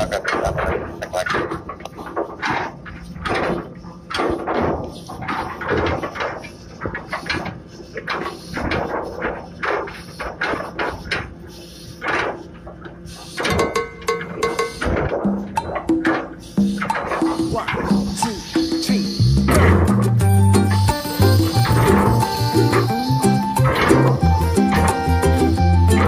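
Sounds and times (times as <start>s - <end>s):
anchor chain clanking: 13.4s - 26.0s
music: 16.6s - 26.0s.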